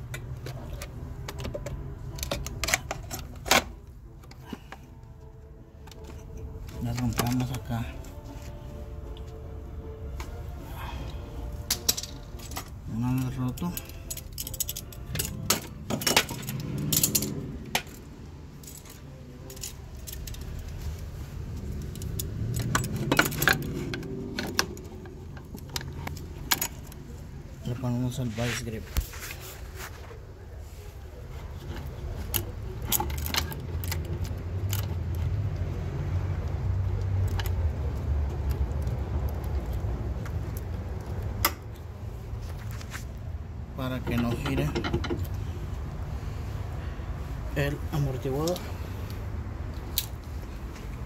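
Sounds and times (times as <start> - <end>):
metal hand tools clinking: 11.6 - 20.6.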